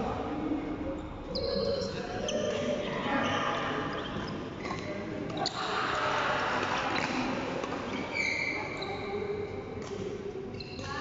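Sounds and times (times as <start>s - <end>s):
shoe squeak: 1.3s - 5.7s, 7.9s - 9.2s, 10.5s - 11.0s.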